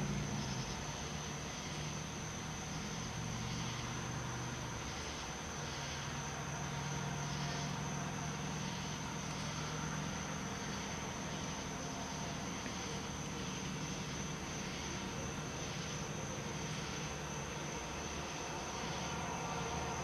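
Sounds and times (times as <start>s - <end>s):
background hiss: 0.0s - 20.0s.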